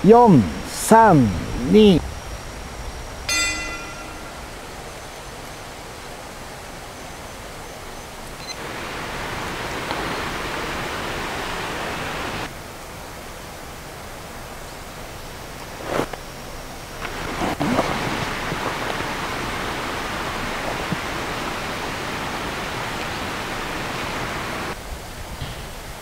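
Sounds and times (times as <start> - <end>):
rush of noise: 0.0 - 6.9
outdoor hiss: 0.0 - 26.0.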